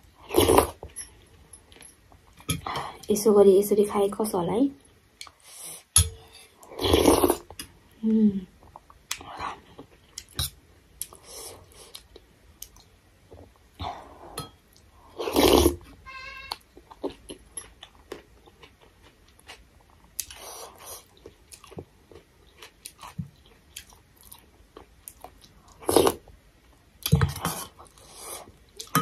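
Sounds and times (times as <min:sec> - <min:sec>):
slurping broth: 0:06.7 - 0:07.4
person chewing: 0:16.4 - 0:26.3.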